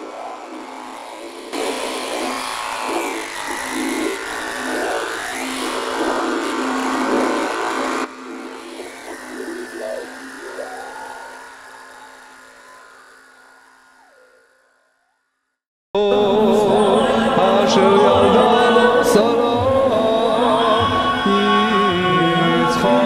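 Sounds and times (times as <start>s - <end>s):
fly buzzing: 0.0s - 15.2s
wavering gliding noises: 0.0s - 15.2s.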